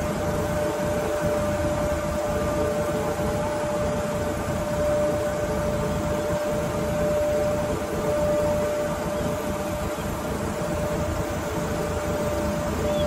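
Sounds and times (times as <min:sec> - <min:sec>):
boat engine rumbling: 0:00.0 - 0:13.0
engine whining tone: 0:00.0 - 0:13.0.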